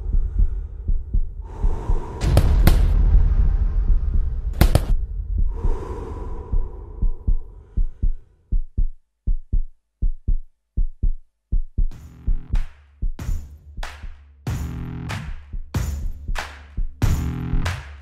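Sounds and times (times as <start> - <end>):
heartbeat thumps: 0.0 - 17.6
rushing noise: 1.5 - 8.1
sharp cracks: 2.2 - 3.3, 4.4 - 5.0.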